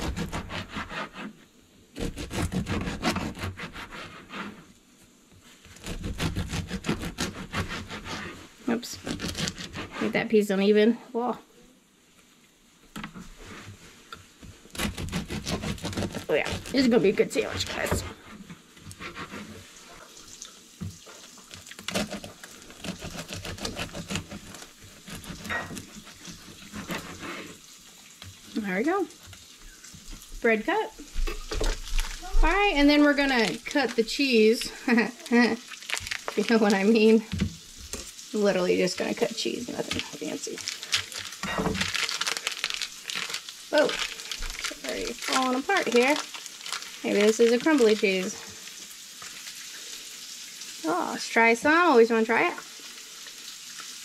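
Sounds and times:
bread knife sawing through loaf: 0.0 - 1.4, 2.0 - 4.7, 5.6 - 10.3, 14.7 - 19.8, 21.7 - 27.6.

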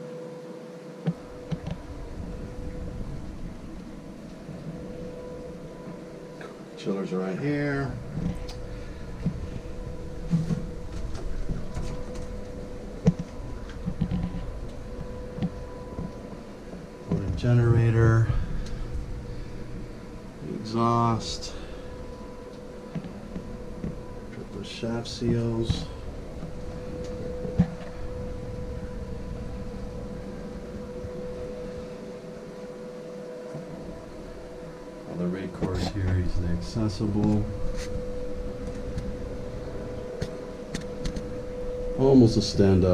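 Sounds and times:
engine room equipment humming: 0.0 - 42.9
low rumble: 1.1 - 6.8, 7.6 - 32.8.

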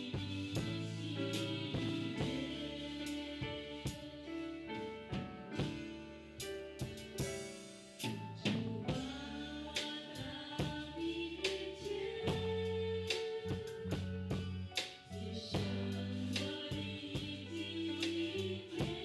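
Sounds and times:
person singing: 0.0 - 4.9, 8.4 - 14.3, 15.1 - 19.0
drum kit: 0.0 - 19.0
electric bass: 0.0 - 19.0
piano: 0.0 - 19.0.

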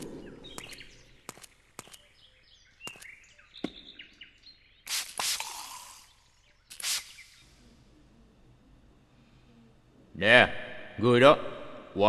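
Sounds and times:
sharp clicks: 0.0 - 2.2
birds chirping: 0.0 - 10.0
loud hissing bursts: 4.9 - 7.5.

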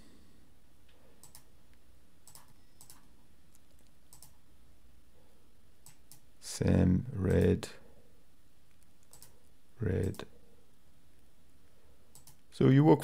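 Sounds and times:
faint low background noise: 0.0 - 13.0
computer mouse clicks: 1.2 - 1.5, 2.2 - 4.4, 5.8 - 6.3, 8.7 - 9.4, 10.0 - 10.3, 12.1 - 12.5.

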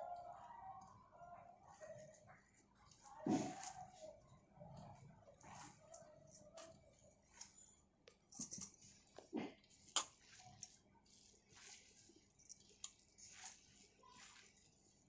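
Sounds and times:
wet squishing of grated vegetables: 8.8 - 15.0.

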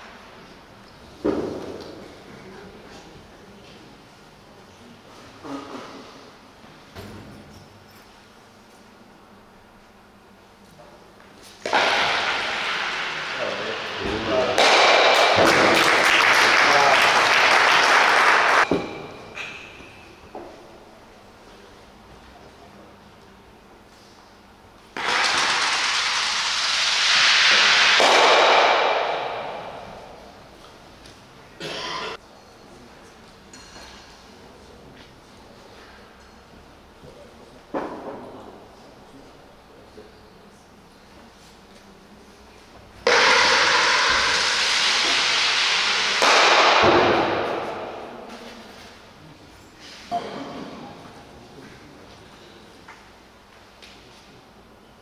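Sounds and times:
sharp knock: 11.7 - 15.8, 27.0 - 30.2, 43.1 - 48.4.

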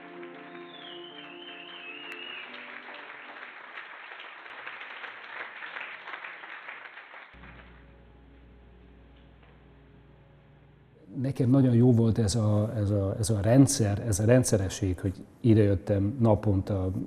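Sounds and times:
audience applauding: 0.0 - 8.0
low steady hum: 7.4 - 17.0.

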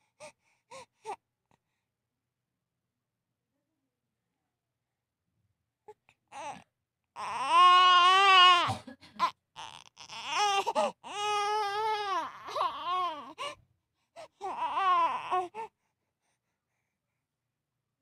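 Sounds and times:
baby crying: 6.3 - 6.6, 7.2 - 13.5, 14.3 - 15.7.

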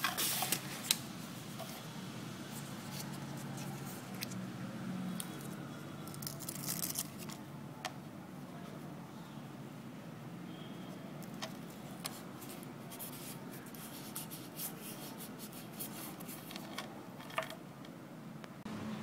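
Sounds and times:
paper rubbing and scratching: 12.1 - 16.8.

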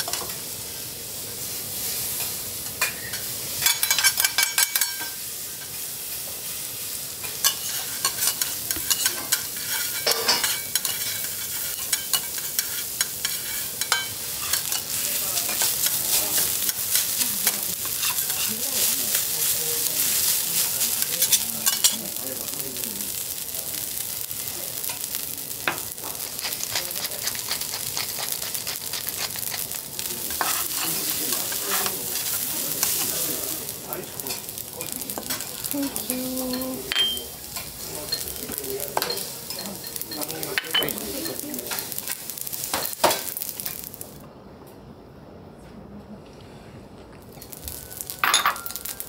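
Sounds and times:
rice sizzling on a griddle: 0.0 - 44.2, 47.2 - 49.0
metal spatulas scraping steel: 7.4 - 14.9, 30.3 - 33.1.

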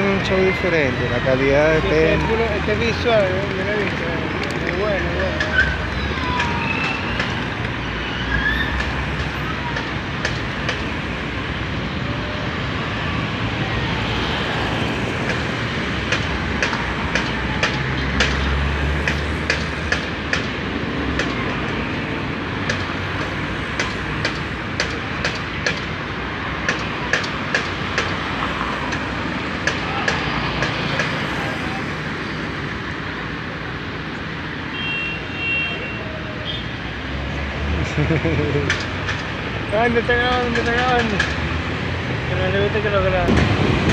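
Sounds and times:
idling vehicle engines: 0.0 - 7.8, 37.8 - 43.9.

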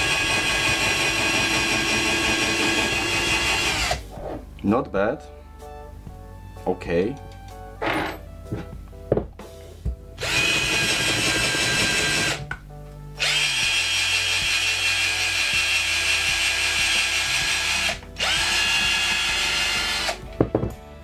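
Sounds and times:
cordless drill whining into wood: 0.0 - 4.1, 10.2 - 12.4, 13.2 - 20.2.

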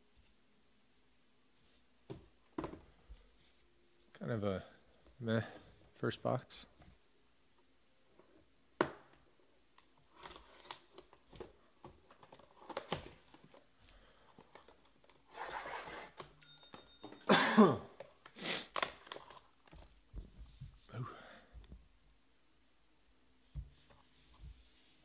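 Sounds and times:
plastic wrap crinkling: 18.1 - 19.9.

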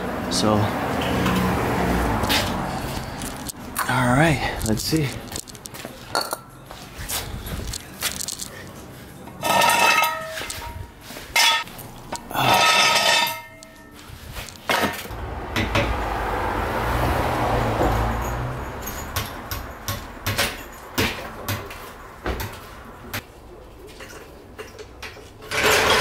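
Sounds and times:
metal jack clanking: 11.4 - 15.1.

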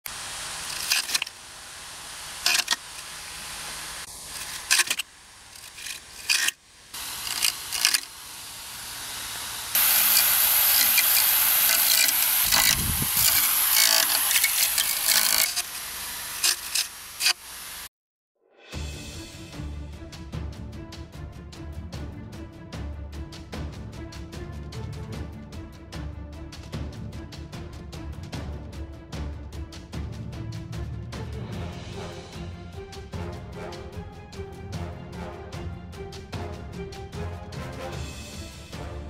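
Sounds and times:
hiss of cutting: 0.0 - 17.9
small motor whirring: 0.1 - 17.9
leaves and twigs clicking and snapping: 0.5 - 1.4, 4.2 - 8.2.

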